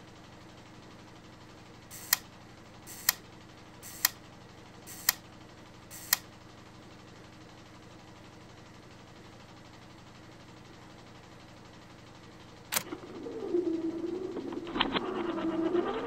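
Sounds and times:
faint steady hum: 0.0 - 16.0
camera shutter clicking: 1.9 - 2.2, 2.9 - 3.2, 4.9 - 5.2, 5.9 - 6.2.

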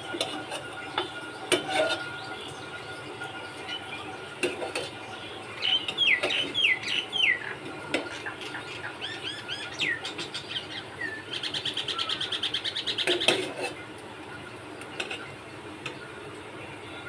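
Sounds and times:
metal skimmer clinking on pot: 0.1 - 6.6
small birds chirping: 5.1 - 7.6.

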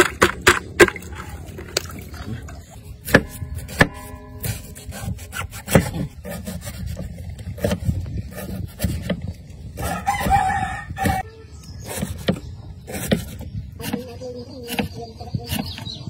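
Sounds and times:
knife chopping on wooden board: 3.0 - 7.0
rooster crowing: 9.8 - 11.4.

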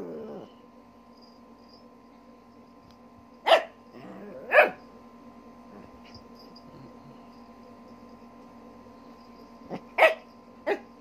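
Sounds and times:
small dog barking: 3.4 - 3.8, 4.4 - 4.8, 9.7 - 10.9.

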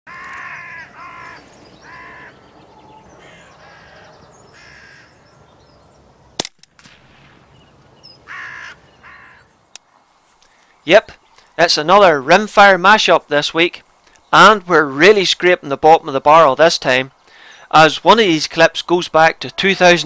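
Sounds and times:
crows cawing: 0.1 - 5.4, 8.2 - 9.6
sharp crack: 6.4 - 7.8.

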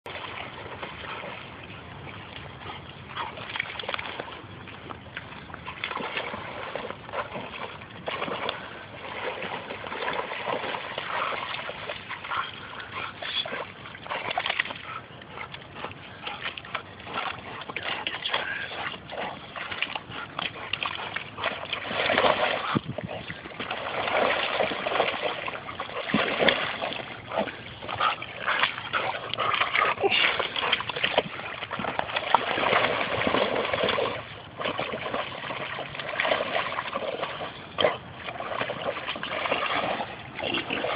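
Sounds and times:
water splashing and sloshing: 0.0 - 40.9.

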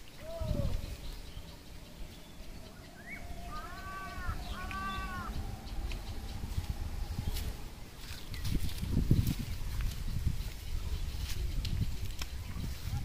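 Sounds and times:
low rumble: 0.0 - 10.6
animal drawn-out arching calls: 0.8 - 8.3
short rising chirp: 1.2 - 8.8.

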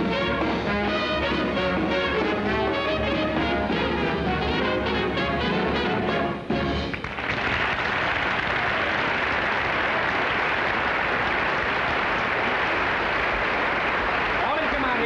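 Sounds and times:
band music: 0.0 - 7.0
audience applauding: 6.8 - 15.0.

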